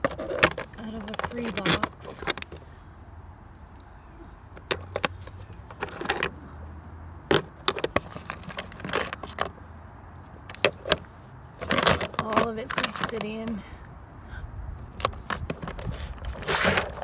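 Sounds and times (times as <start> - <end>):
stones scraping: 0.0 - 2.9, 4.4 - 6.6, 7.3 - 9.6, 10.2 - 13.7, 14.9 - 17.0.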